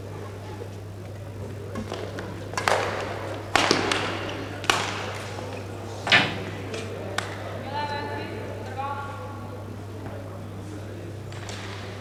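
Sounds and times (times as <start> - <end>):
rackets hitting shuttlecock: 1.8 - 7.6, 11.3 - 12.0.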